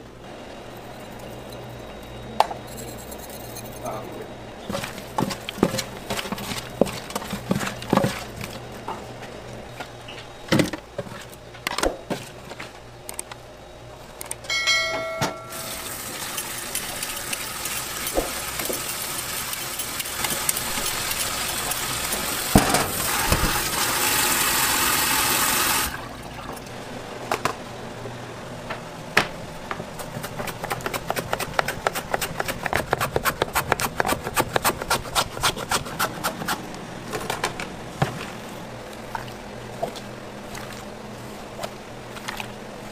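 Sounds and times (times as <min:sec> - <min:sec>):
tap water running into metal sink: 0:15.5 - 0:26.0
potato slicing on mandoline: 0:30.0 - 0:36.7.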